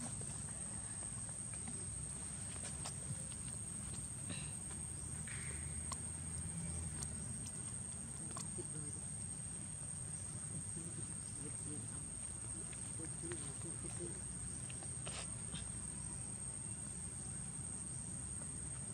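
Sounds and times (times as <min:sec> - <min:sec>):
faint chirps: 0:02.7 - 0:07.6.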